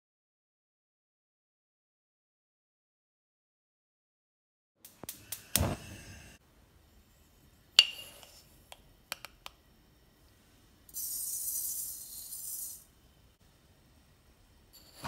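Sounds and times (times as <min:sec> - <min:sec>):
plastic spoon tapping jar: 0:07.8 - 0:09.6.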